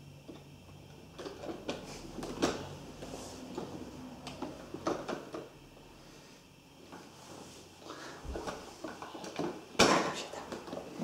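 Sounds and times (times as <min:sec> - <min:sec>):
plastic toy car knocks and rattles: 0:03.6 - 0:05.5.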